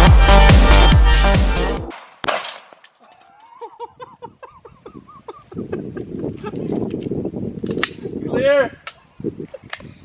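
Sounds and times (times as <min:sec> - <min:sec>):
wind rumble on microphone: 0:04.1 - 0:10.0.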